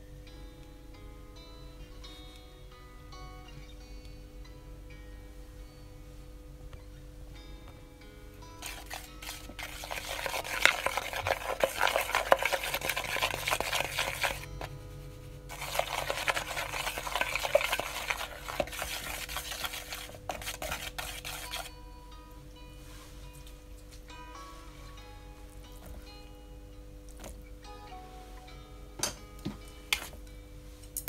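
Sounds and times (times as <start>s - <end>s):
chopsticks stirring flour in bowl: 8.6s - 14.8s, 15.5s - 21.7s, 29.9s - 30.2s.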